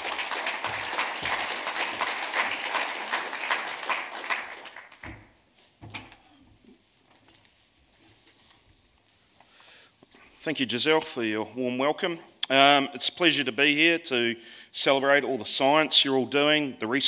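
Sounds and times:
audience clapping: 0.0 - 5.4.

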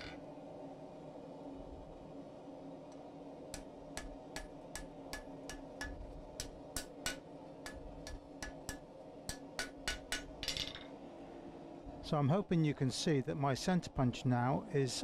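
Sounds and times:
hammer striking hot metal bar: 3.5 - 10.6.

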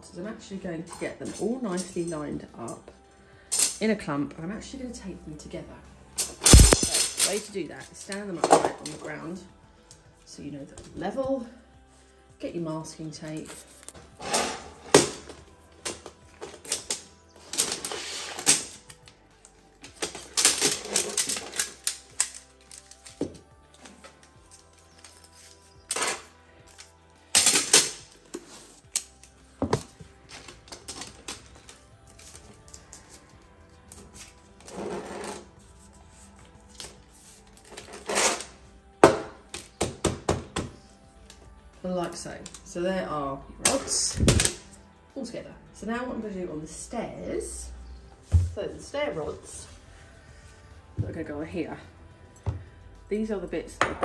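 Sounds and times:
tape ripping off roll: 6.4 - 7.3, 37.6 - 38.5.

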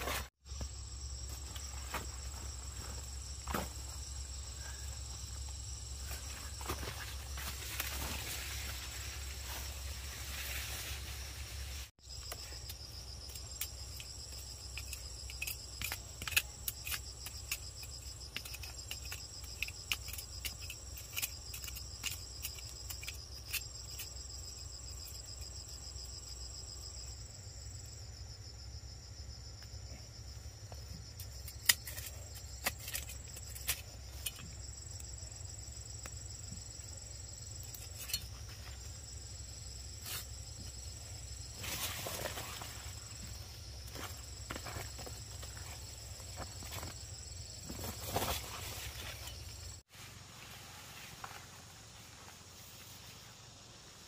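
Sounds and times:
insects trilling: 0.5 - 54.0
hand tool digging into soil: 12.2 - 25.5, 31.1 - 35.0.

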